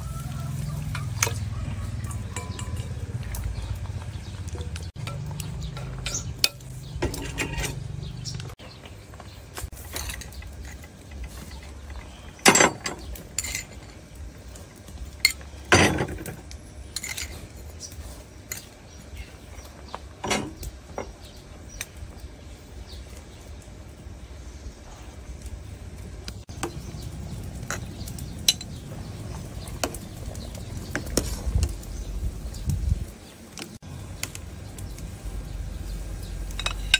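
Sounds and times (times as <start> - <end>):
utensils clinking against pots: 0.0 - 8.6, 9.6 - 22.0, 27.5 - 31.9, 36.5 - 36.9.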